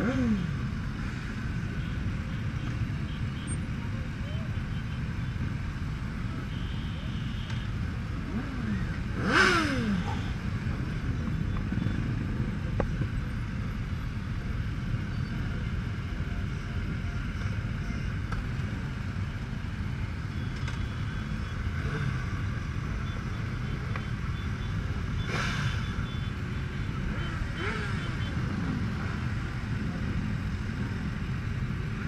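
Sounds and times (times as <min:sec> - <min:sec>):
motorcycle engines idling: 0:00.0 - 0:32.0
engine revving down: 0:08.3 - 0:10.2.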